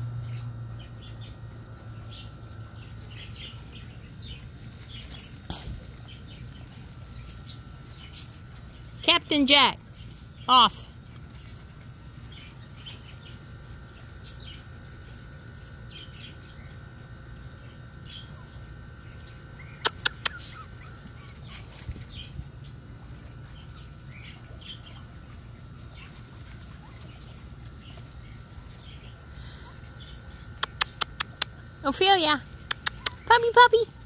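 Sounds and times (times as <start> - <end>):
birds chirping: 0.0 - 34.0
faint steady hum: 0.0 - 34.0
sharp clicks: 19.8 - 20.6, 30.6 - 31.5, 32.6 - 33.3.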